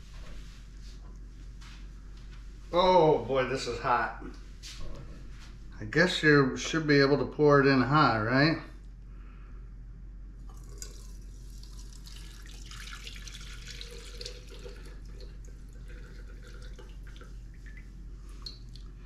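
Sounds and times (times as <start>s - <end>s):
small drips and ticks: 10.4s - 19.0s
grease trickling through strainer: 10.5s - 19.0s.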